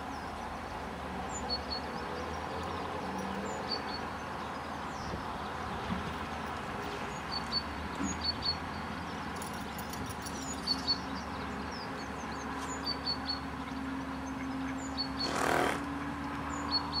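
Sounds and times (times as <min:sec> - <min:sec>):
small birds chirping: 0:07.1 - 0:17.0.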